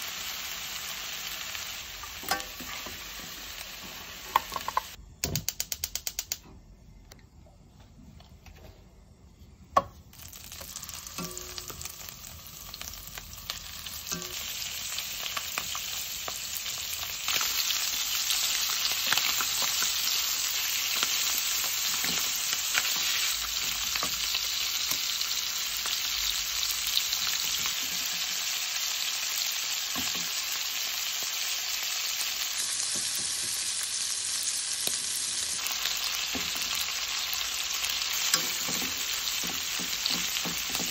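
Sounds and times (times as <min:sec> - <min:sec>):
chicken sizzling in oil: 0:00.0 - 0:05.0, 0:10.1 - 0:40.9
sharp click: 0:05.2 - 0:07.2.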